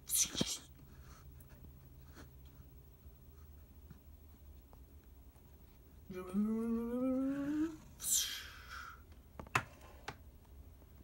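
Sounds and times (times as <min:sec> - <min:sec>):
person humming: 0:06.1 - 0:08.9.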